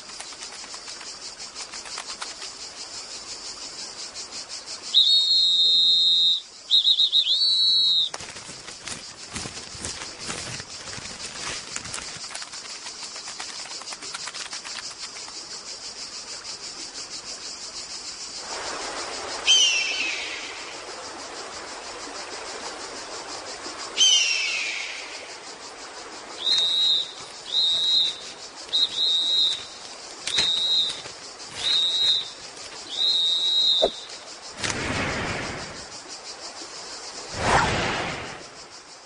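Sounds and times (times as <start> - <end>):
high hiss: 14.8 - 39.0
high whistle-like notes: 30.3 - 34.1
rushing whoosh: 37.3 - 38.5.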